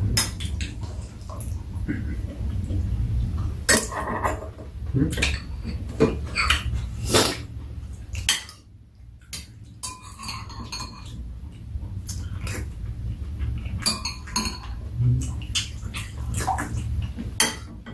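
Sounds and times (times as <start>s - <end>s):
steady low hum: 0.0s - 17.9s
spoons clinking on ceramic bowls: 9.8s - 11.2s.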